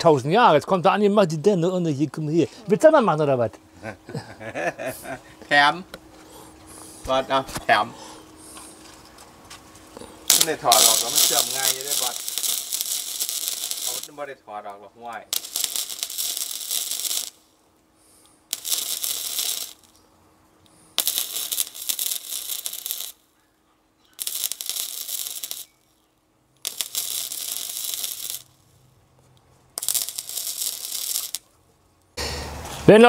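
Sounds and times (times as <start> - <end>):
welder crackling sizzle: 8.7 - 23.4, 24.0 - 32.2.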